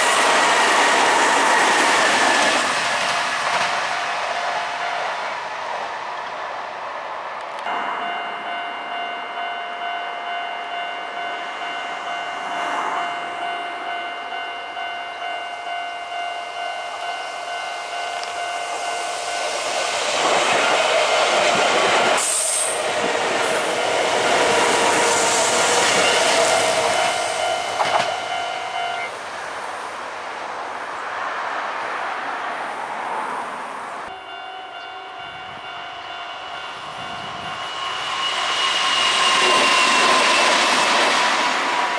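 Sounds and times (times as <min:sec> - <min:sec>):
electric train passing on rails: 0:00.0 - 0:41.9
level-crossing warning bell ringing: 0:03.6 - 0:05.6, 0:07.6 - 0:29.2, 0:34.0 - 0:41.9.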